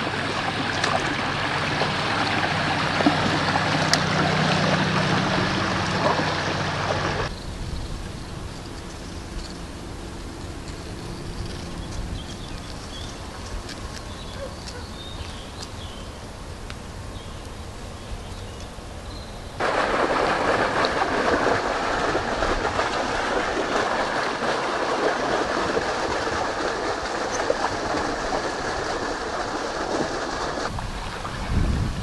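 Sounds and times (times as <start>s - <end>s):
water rushing against hull: 0.0s - 7.4s, 19.6s - 32.0s.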